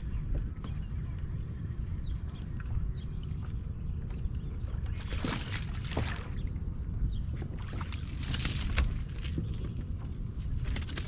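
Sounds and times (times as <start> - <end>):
wind rumble on microphone: 0.0 - 11.0
water slapping kayak hull: 2.2 - 6.7.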